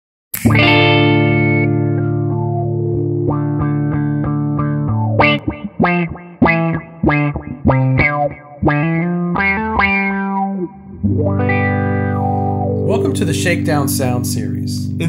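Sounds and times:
auto-wah electric guitar notes: 0:00.4 - 0:15.0
sustained guitar chord: 0:00.5 - 0:05.4, 0:10.2 - 0:15.0.

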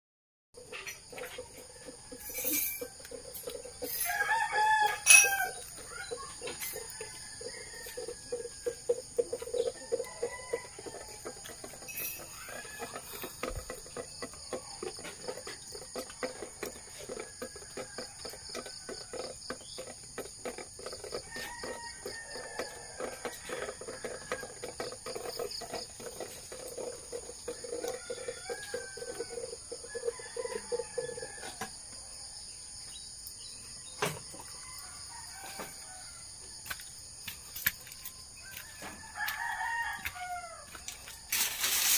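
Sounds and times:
rooster crowing: 0:01.3 - 0:13.6, 0:21.0 - 0:25.8, 0:26.6 - 0:31.8, 0:34.3 - 0:36.8, 0:38.4 - 0:41.4.

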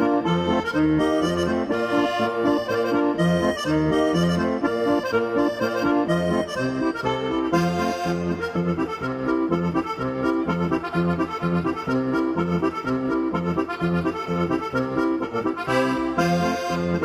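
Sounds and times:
lively accordion tune: 0:00.0 - 0:17.0.

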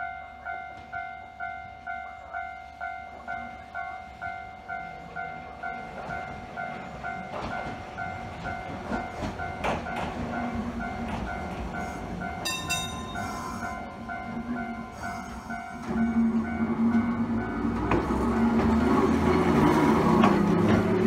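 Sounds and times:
level-crossing warning bell clanging: 0:00.0 - 0:21.0
tram motor hum: 0:00.0 - 0:21.0
tram wheels clicking over rail joints: 0:05.0 - 0:21.0.

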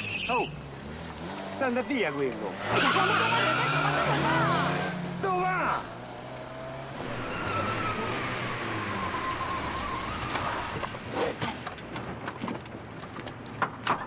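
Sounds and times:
tyre squeal: 0:00.0 - 0:00.6, 0:02.7 - 0:04.1, 0:07.0 - 0:11.3
car engine speeding away: 0:00.6 - 0:11.0.

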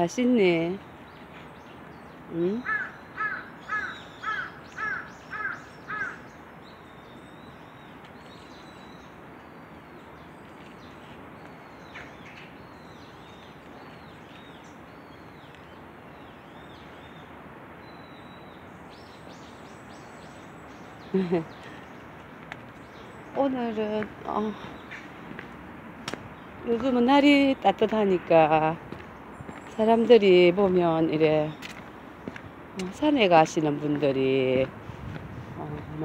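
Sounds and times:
outdoor background hiss: 0:00.0 - 0:36.0
small birds chirping: 0:00.0 - 0:36.0
bird calling: 0:01.2 - 0:25.3.

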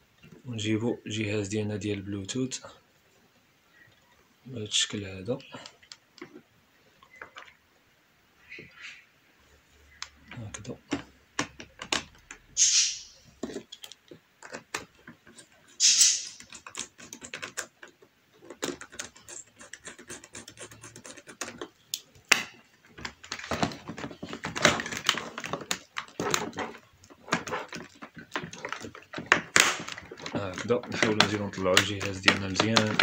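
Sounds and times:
plastic clicks taps and scrapes: 0:09.9 - 0:12.5, 0:13.4 - 0:15.8, 0:16.4 - 0:33.0
short hissing sounds: 0:12.5 - 0:13.3, 0:15.8 - 0:16.5.

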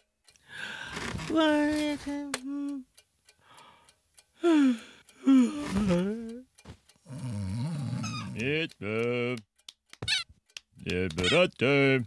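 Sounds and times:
cartoon character wordless vocal tone: 0:08.2 - 0:09.4, 0:10.8 - 0:11.6
alarm clock ticking: 0:08.2 - 0:12.0.

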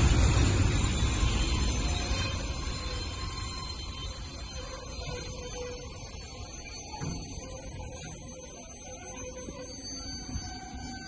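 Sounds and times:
freight train wheels rumbling: 0:00.0 - 0:08.3.

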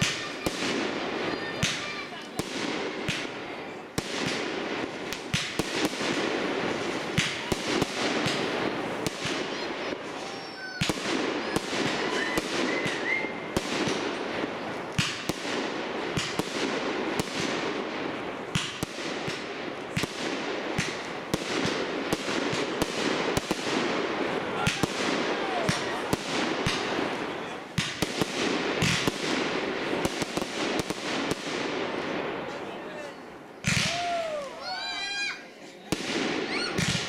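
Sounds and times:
fireworks whistling: 0:00.0 - 0:17.8, 0:36.1 - 0:37.0
fireworks bangs and crackles: 0:00.0 - 0:37.0.

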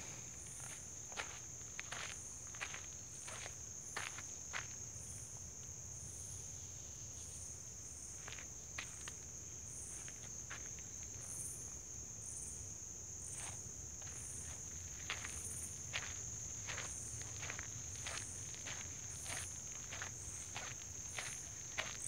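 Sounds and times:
soft footsteps on pavement: 0:00.4 - 0:05.8, 0:08.0 - 0:11.6, 0:13.3 - 0:22.0.

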